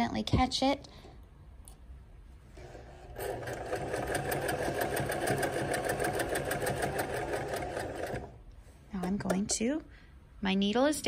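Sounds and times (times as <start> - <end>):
electric sewing machine running: 3.0 - 8.4.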